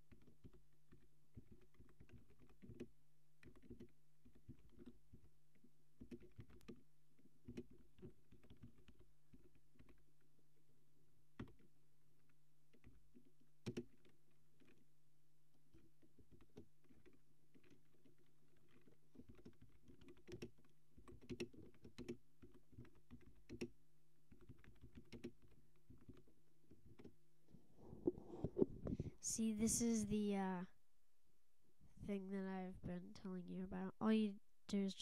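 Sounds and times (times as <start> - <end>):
typing on computer keyboard: 0.1 - 10.0, 12.7 - 14.8, 15.7 - 27.2
low steady hum: 23.4 - 35.0.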